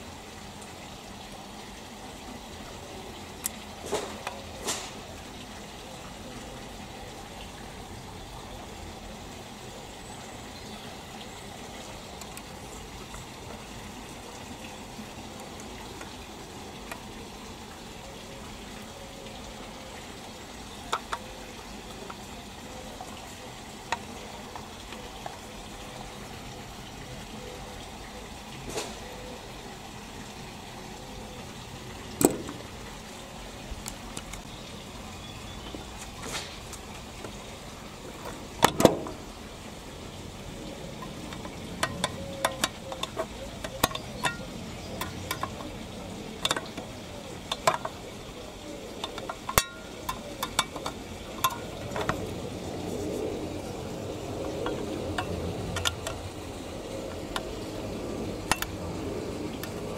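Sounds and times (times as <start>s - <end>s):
steady background hiss: 0.0s - 59.9s
clicks and knocks of handling: 32.2s - 32.6s, 38.2s - 39.2s, 41.0s - 48.1s, 48.9s - 52.4s, 54.5s - 56.3s.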